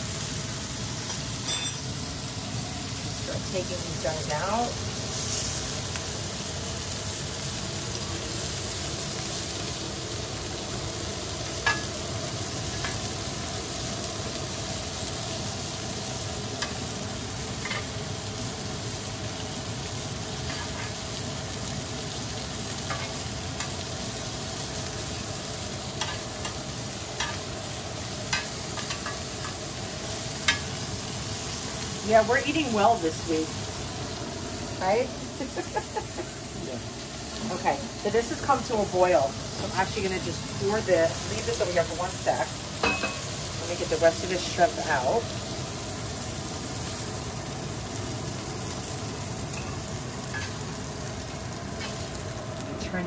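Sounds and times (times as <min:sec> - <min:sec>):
shrimp sizzling in oil: 0:00.0 - 0:53.0
metal tongs clicking against pan: 0:16.6 - 0:16.8, 0:26.0 - 0:26.6, 0:27.2 - 0:27.4, 0:30.4 - 0:30.7.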